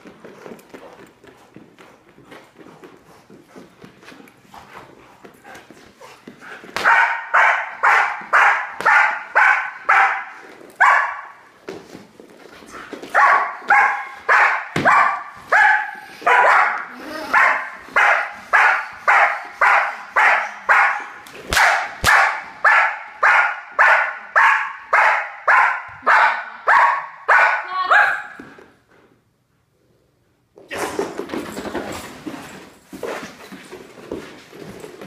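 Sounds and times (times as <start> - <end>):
dog barking: 6.8 - 11.3, 13.2 - 28.4.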